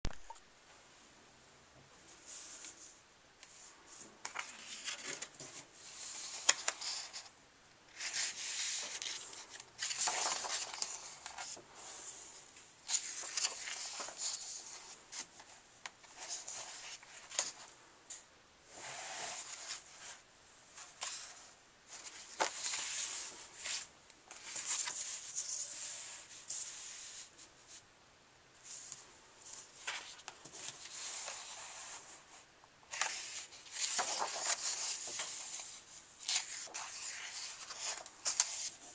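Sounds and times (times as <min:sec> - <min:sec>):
book pages turning: 0:04.2 - 0:07.3, 0:07.9 - 0:11.6, 0:12.8 - 0:17.6, 0:20.8 - 0:25.9, 0:32.9 - 0:38.9.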